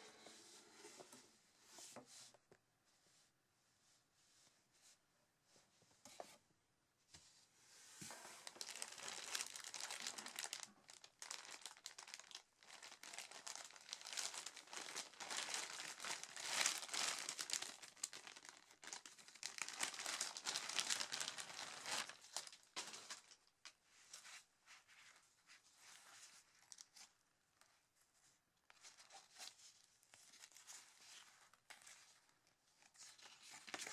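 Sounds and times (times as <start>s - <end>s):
plastic bag crinkling: 8.3s - 23.8s.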